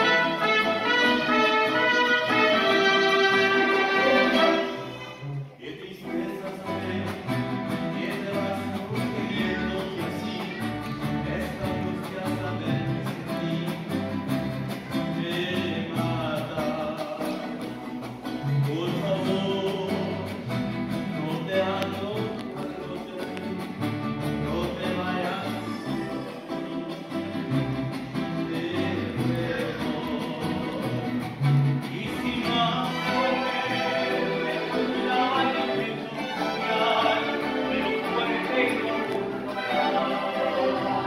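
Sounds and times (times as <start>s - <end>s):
violins: 0.0s - 16.1s, 31.0s - 41.0s
guitars: 0.0s - 41.0s.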